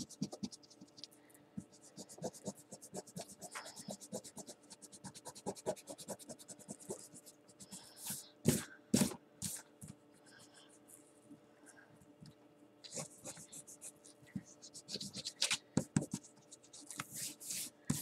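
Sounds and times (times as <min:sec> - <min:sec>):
marker scratching on paper: 0:00.0 - 0:01.0, 0:01.8 - 0:09.6, 0:12.9 - 0:18.0.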